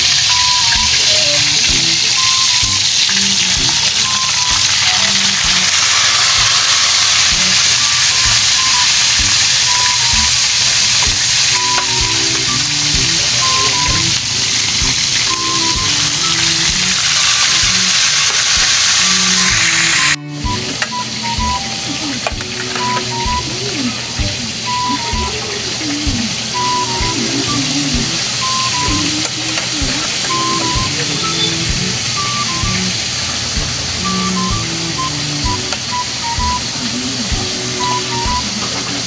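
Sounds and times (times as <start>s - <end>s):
fish sizzling in hot oil: 0.0s - 20.2s
background music: 0.0s - 39.0s.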